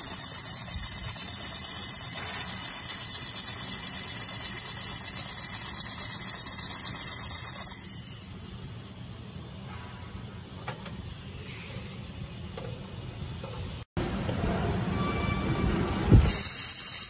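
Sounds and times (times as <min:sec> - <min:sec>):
laser welder high-pitched hiss: 0:00.0 - 0:08.4, 0:16.2 - 0:17.0.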